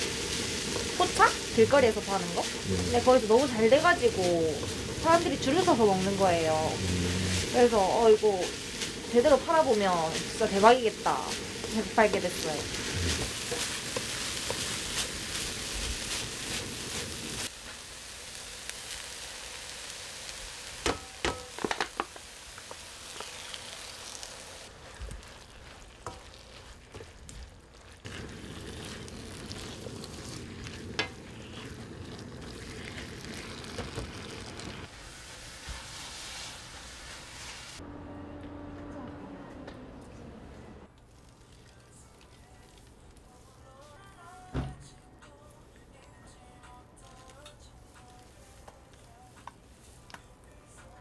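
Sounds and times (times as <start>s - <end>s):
meat sizzling in a frying pan: 0.0s - 37.8s.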